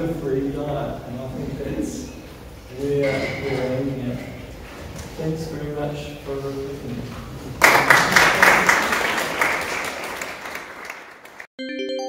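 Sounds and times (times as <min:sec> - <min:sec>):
audience applauding: 0:07.6 - 0:11.5
chiming jingle: 0:11.6 - 0:12.0.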